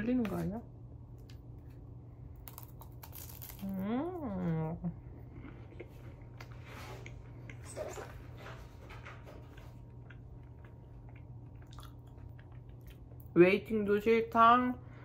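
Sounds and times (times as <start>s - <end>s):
low steady hum: 0.0s - 15.0s
chewing and crunching cracker: 2.3s - 4.2s, 9.5s - 13.3s.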